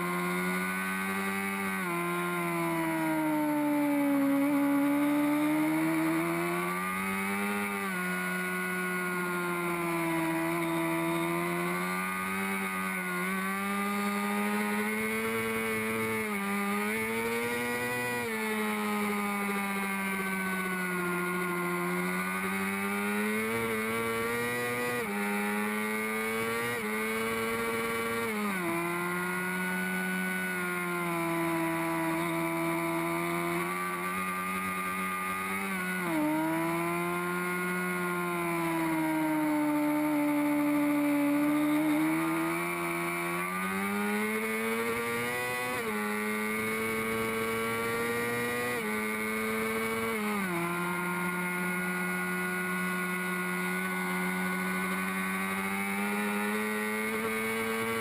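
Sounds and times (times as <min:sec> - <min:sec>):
motorcycle engine at racing speed: 0:00.0 - 0:58.0.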